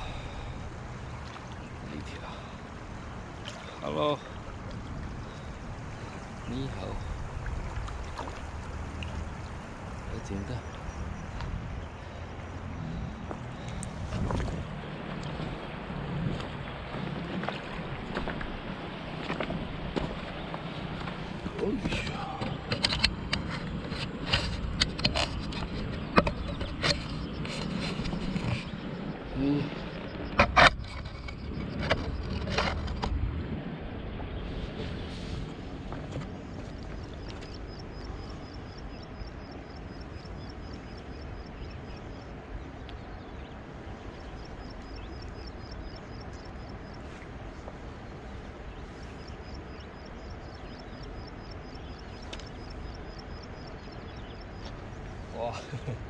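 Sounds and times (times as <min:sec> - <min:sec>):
low outdoor rumble: 0:00.0 - 0:56.0
fishing rod handling clicks and scrapes: 0:21.9 - 0:28.8, 0:30.4 - 0:33.2.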